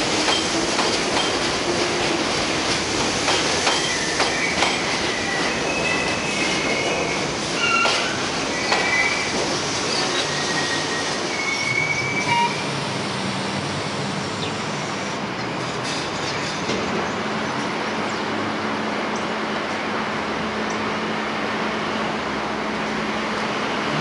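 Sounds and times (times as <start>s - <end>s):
stopped train humming: 0.0s - 24.0s
train wheels squealing: 3.7s - 12.8s.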